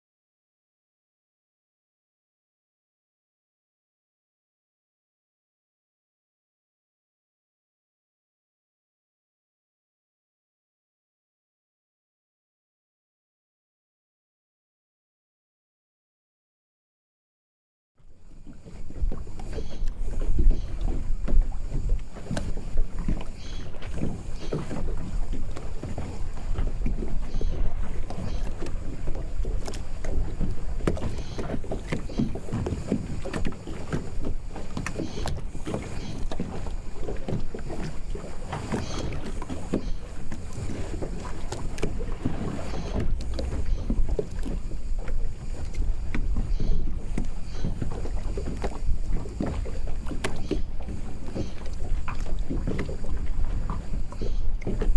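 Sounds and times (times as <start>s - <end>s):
low rumble of wind: 18.0s - 54.9s
water lapping against boat and quay: 18.0s - 54.9s
boat knocking: 18.4s - 54.9s.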